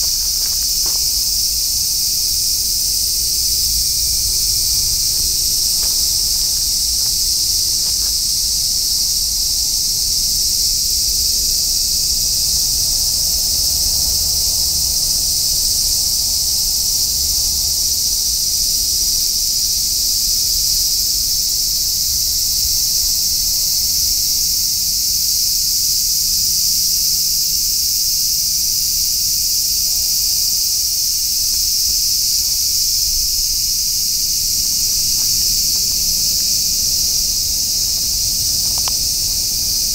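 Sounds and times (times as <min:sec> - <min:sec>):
insects shrilling: 0:00.0 - 0:11.3, 0:29.0 - 0:39.9.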